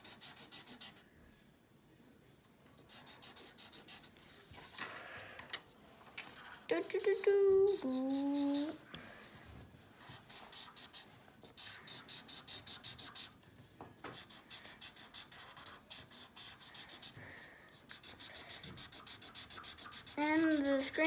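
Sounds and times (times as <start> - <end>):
marker scratching on paper: 0.0 - 1.0, 2.8 - 4.9, 6.2 - 9.4, 10.0 - 13.5, 14.1 - 21.0.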